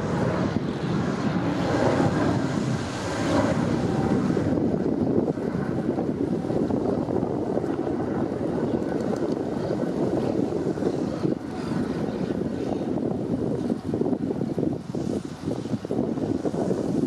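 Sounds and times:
jet engines deep rumble: 0:00.0 - 0:17.0
wind buffeting microphone: 0:00.0 - 0:17.0.

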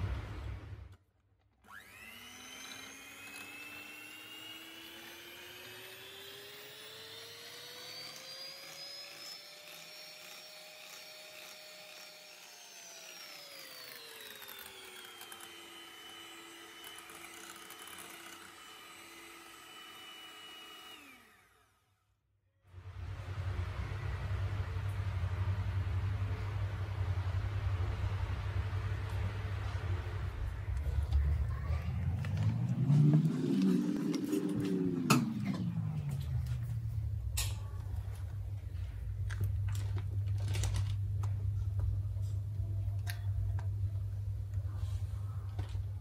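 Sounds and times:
electric hand mixer whining: 0:01.6 - 0:22.0, 0:30.1 - 0:38.6.

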